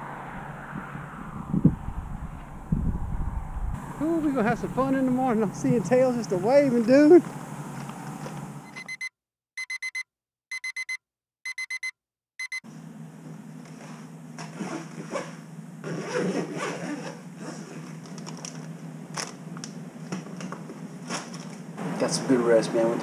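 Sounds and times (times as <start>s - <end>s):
digital alarm clock beeping: 8.7s - 12.6s.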